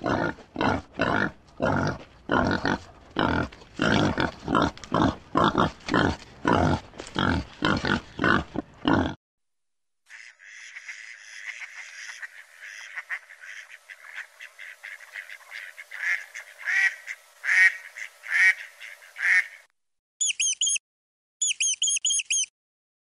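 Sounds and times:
duck quacking: 10.1s - 19.7s
mouse squeaking: 20.2s - 20.8s, 21.4s - 22.5s.

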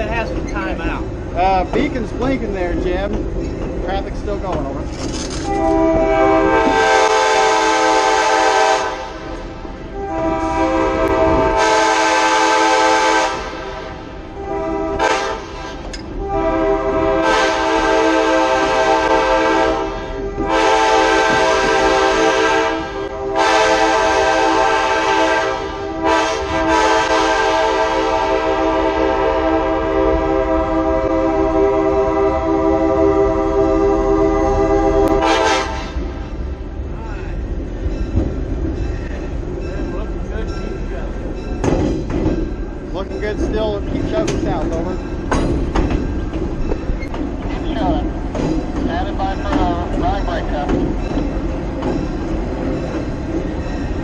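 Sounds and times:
train air horn blowing: 5.4s - 36.3s.

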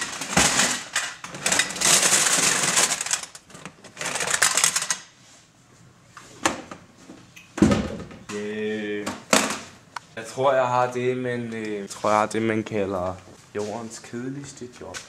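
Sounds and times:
plastic tape cases clattering: 0.0s - 5.1s.

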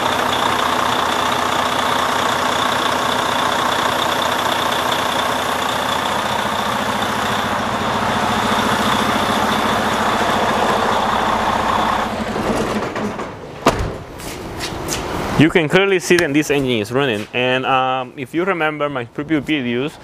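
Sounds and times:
diesel engine idling: 0.0s - 13.6s.

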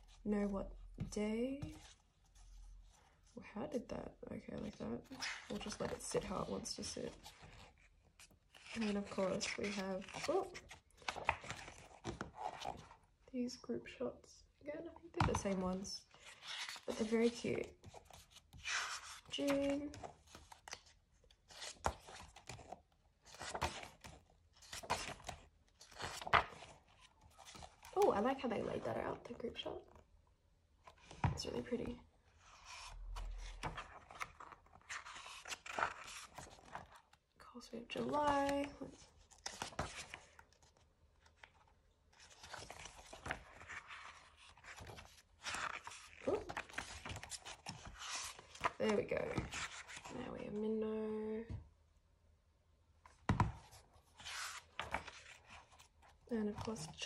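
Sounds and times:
paper pages turning: 4.6s - 13.0s, 15.3s - 28.9s, 32.4s - 37.2s, 38.0s - 50.1s, 53.2s - 57.0s.

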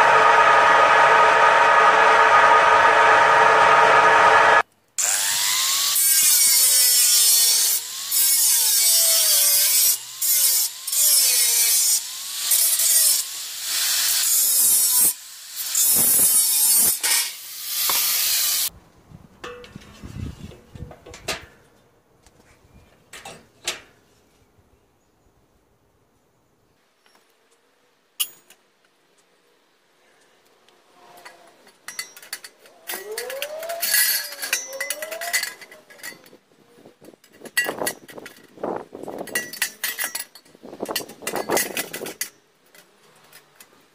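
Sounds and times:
table saw whining: 0.0s - 12.1s, 32.9s - 35.8s
angle grinder cutting metal: 0.0s - 18.7s, 32.0s - 36.3s.

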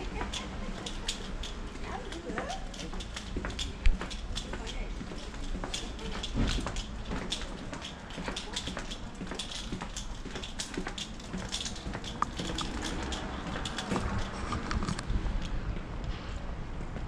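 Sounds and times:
footsteps on rough pavement: 0.0s - 15.8s.

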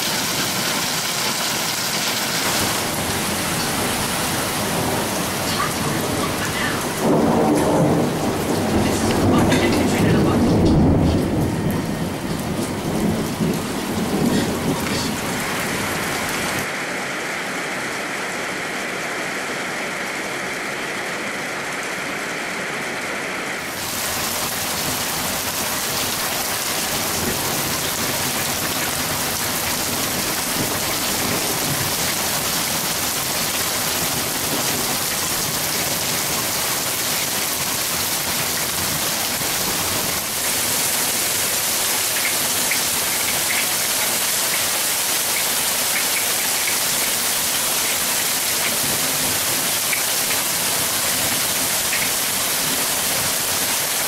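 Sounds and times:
heavy rain splashing in puddles: 0.0s - 54.0s.

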